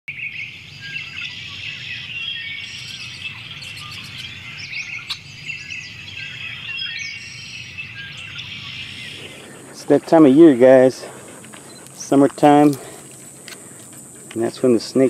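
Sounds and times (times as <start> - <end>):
small birds chirping: 0.1 - 15.0.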